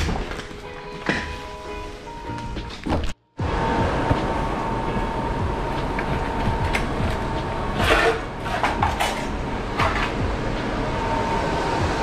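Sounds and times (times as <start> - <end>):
hand truck wheels rumbling on tiles: 5.4 - 10.6.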